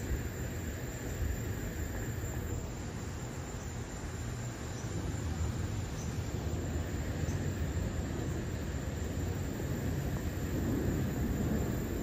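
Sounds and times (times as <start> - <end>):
faint high insect drone: 0.0 - 12.0
wind buffeting microphone: 4.9 - 12.0.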